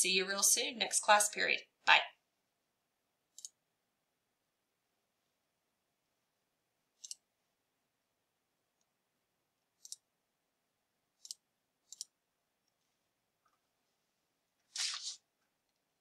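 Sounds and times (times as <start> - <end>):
computer mouse clicking: 3.3 - 3.6, 7.0 - 7.3, 9.8 - 10.1, 11.2 - 12.2.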